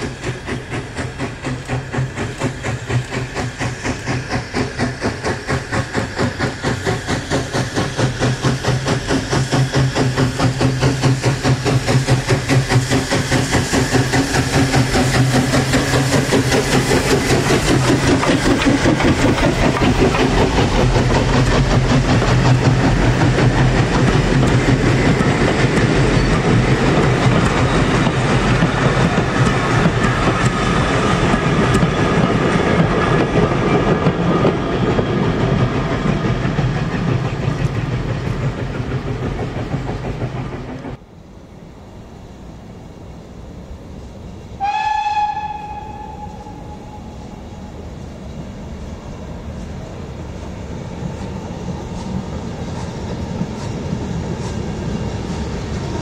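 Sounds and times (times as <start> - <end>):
wheels clicking over rail joints: 0.0 - 41.0
steam locomotive exhaust beat: 0.0 - 41.1, 42.9 - 56.0.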